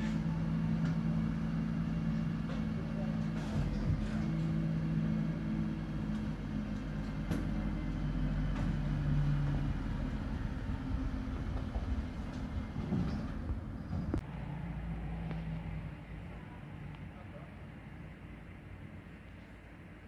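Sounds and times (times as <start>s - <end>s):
garbage truck engine and hydraulics: 0.0s - 20.0s.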